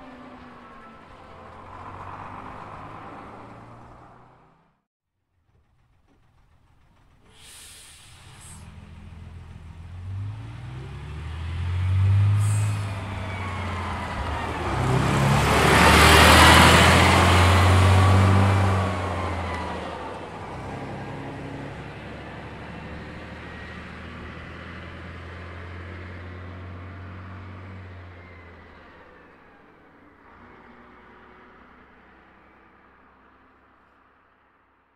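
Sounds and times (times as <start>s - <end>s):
bus engine: 0.0s - 34.9s
air hisses: 7.3s - 8.7s.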